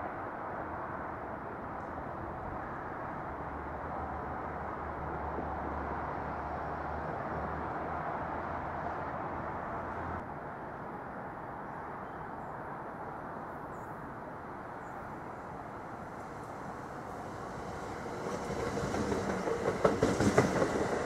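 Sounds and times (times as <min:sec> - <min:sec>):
outdoor background noise: 0:00.0 - 0:21.0.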